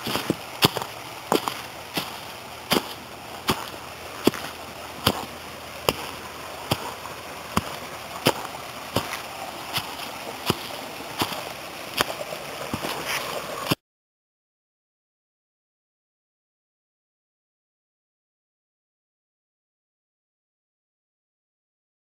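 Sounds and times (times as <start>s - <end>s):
footsteps walking: 0.0s - 13.8s
mountain stream rushing: 0.0s - 13.8s.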